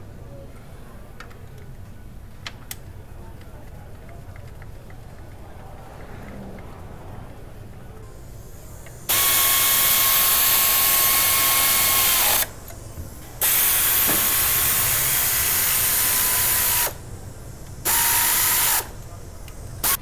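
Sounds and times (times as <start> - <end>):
power tool whining: 8.8 - 20.0.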